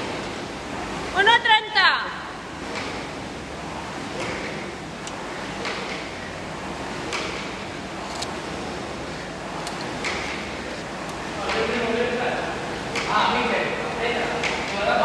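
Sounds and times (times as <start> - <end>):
steady background noise: 0.0 - 15.0
rowing machine flywheel swish: 2.4 - 15.0.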